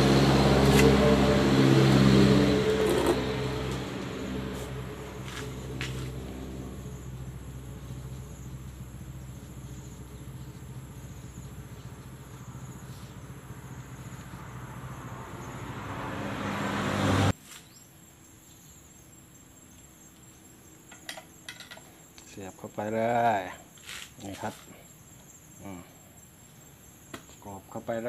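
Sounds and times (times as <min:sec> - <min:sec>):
engine running hum: 0:00.0 - 0:17.3
insects chirping: 0:00.0 - 0:28.0.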